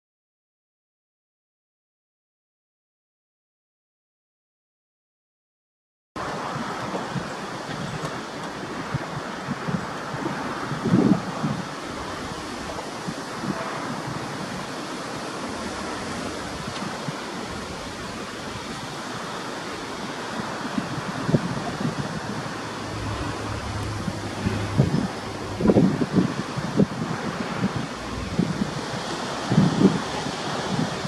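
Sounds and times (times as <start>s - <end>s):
wind buffeting microphone: 6.2s - 31.0s
distant locomotive drone: 21.6s - 26.7s, 27.4s - 30.2s.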